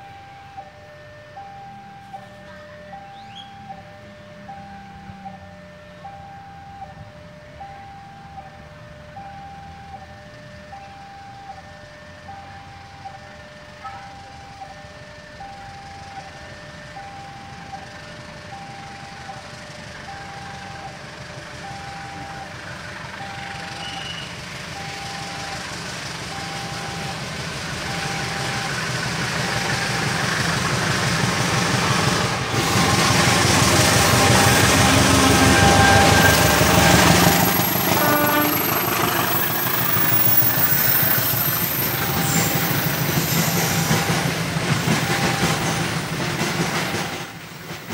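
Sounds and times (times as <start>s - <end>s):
diesel locomotive engine: 0.0s - 47.9s
freight wagons rolling by: 19.0s - 47.9s.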